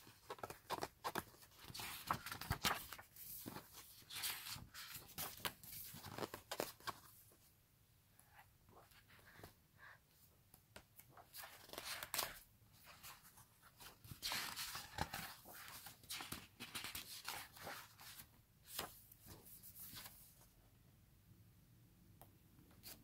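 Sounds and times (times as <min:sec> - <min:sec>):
book pages turning: 0:00.1 - 0:07.2, 0:11.0 - 0:20.3.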